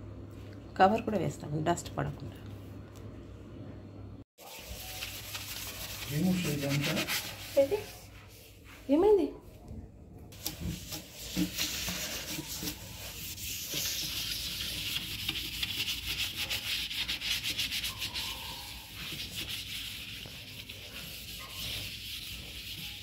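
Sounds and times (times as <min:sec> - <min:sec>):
scouring pad scrubbing ceramic basin: 0:04.4 - 0:08.1, 0:10.4 - 0:23.0.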